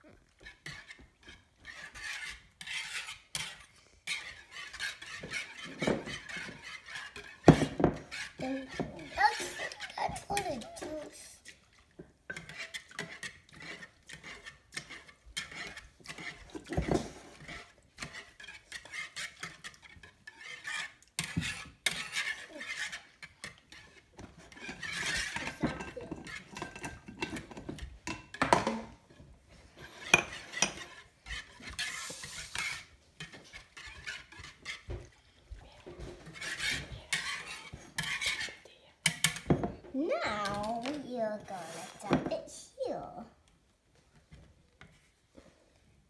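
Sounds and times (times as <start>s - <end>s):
utensils and dishes clinking: 24.3s - 29.0s.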